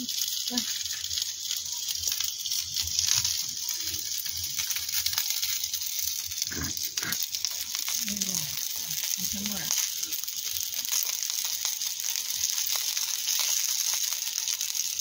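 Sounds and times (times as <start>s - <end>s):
dumplings sizzling in a pan: 0.0s - 15.0s
low vocal sounds: 6.5s - 7.2s.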